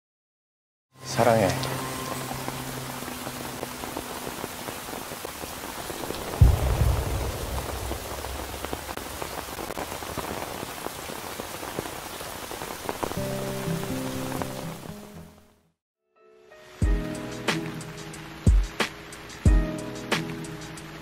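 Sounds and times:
rain pattering: 1.0s - 15.6s, 16.8s - 21.0s
deep rumble: 6.0s - 9.9s.

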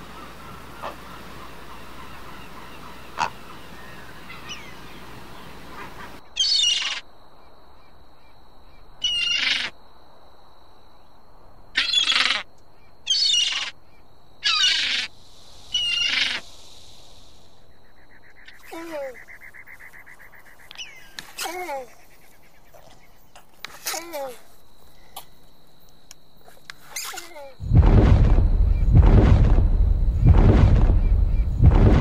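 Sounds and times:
faint bird calls: 0.0s - 9.8s, 11.8s - 16.6s, 17.6s - 23.6s
woodpecker harsh calls: 6.4s - 7.0s, 9.0s - 9.7s, 13.1s - 13.7s, 14.4s - 15.1s.

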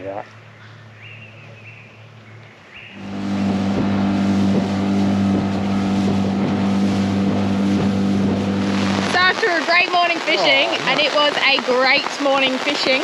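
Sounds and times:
outboard motor running: 0.0s - 13.0s
water rushing from wake: 3.0s - 13.0s.

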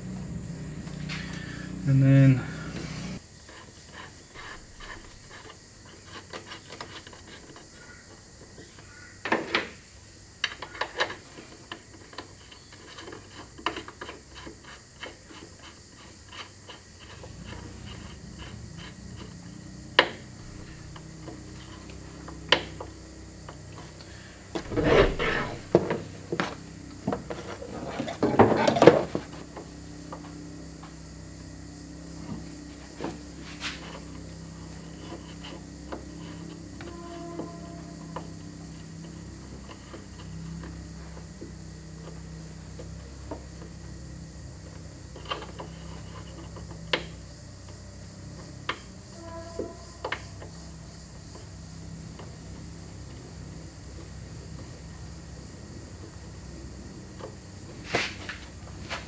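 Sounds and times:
steady low hum: 0.0s - 3.2s, 17.0s - 48.4s
rubber hose scraping engine parts: 0.0s - 8.8s, 10.6s - 59.0s.

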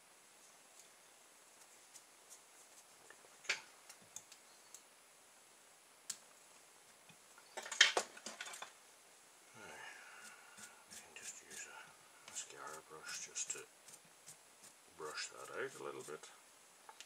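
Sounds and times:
small sharp ticks: 1.6s - 4.9s, 6.0s - 6.3s.

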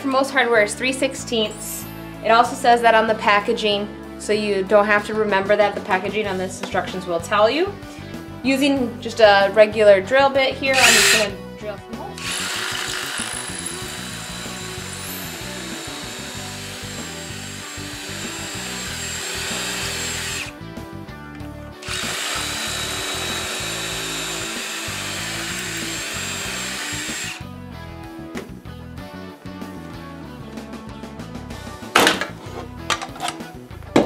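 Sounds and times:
background music: 0.0s - 34.0s
cordless drill boring into wood: 10.7s - 11.4s, 12.2s - 20.5s, 21.8s - 27.4s.

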